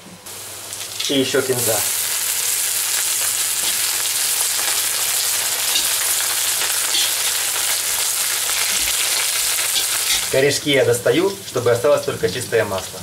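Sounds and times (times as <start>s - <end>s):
oil sizzling in a wok: 0.2s - 13.0s.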